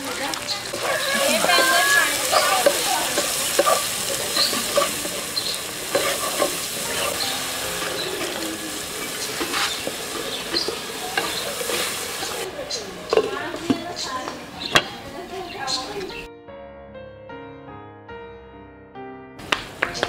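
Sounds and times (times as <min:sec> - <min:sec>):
food sizzling in oil: 0:00.0 - 0:16.3
utensil scraping a pan: 0:00.6 - 0:12.5, 0:13.1 - 0:15.0.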